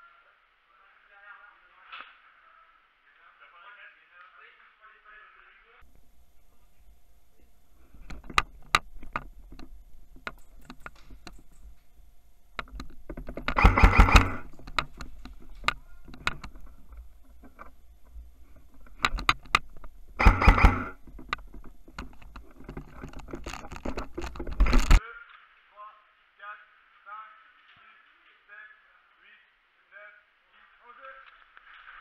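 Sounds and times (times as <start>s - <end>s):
gear clicking and knocking: 12.6s - 25.0s
airsoft gun firing bursts: 13.5s - 14.5s, 20.2s - 21.1s.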